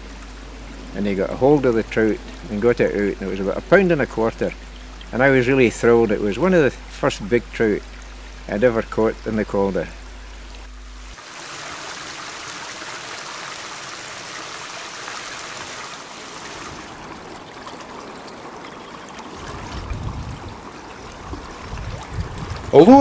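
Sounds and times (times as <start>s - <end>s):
low rumbling: 0.0s - 11.2s, 19.4s - 23.0s
river water running: 0.0s - 23.0s.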